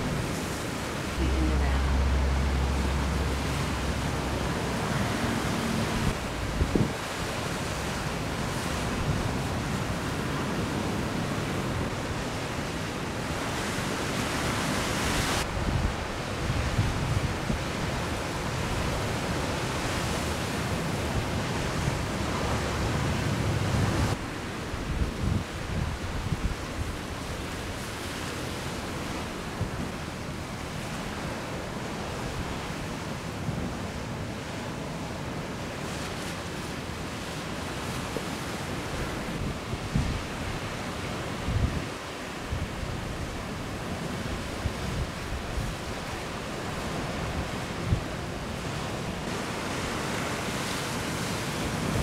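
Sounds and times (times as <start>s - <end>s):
wind rumbling on microphone: 0.0s - 12.4s, 13.1s - 28.0s, 37.2s - 52.0s
ocean surf hissing: 0.0s - 24.2s
ocean surf breaking: 0.0s - 52.0s.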